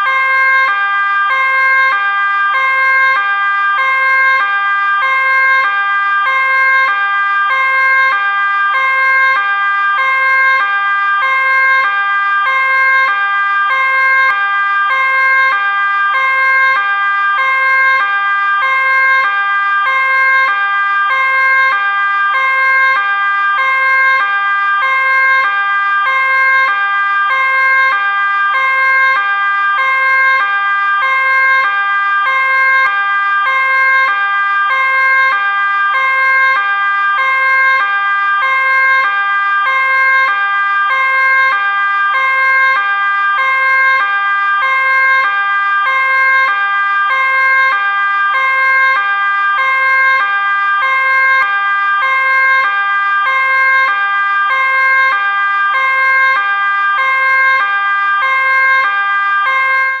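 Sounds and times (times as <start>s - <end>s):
two-tone police siren: 0.0s - 60.0s.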